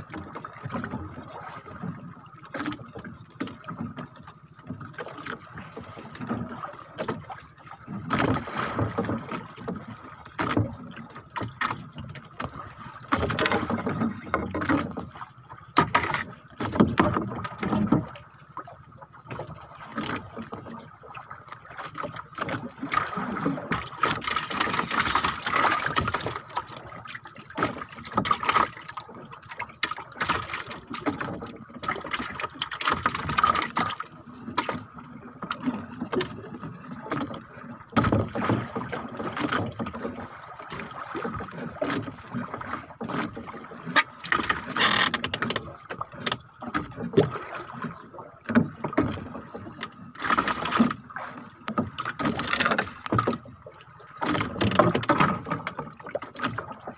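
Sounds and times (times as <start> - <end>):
knocks against wooden hull: 15.8 - 18.2, 37.1 - 40.1, 51.7 - 53.5, 54.2 - 56.7.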